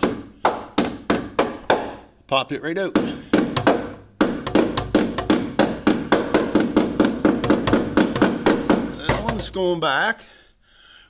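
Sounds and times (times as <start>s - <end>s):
hammer tapping on metal: 3.0s - 9.6s.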